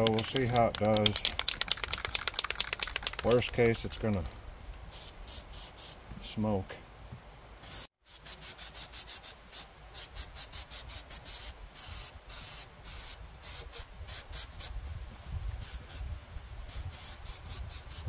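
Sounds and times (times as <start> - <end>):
spray can hissing: 0.9 - 3.5, 4.9 - 6.0, 7.6 - 14.8, 15.6 - 16.1, 16.7 - 18.0.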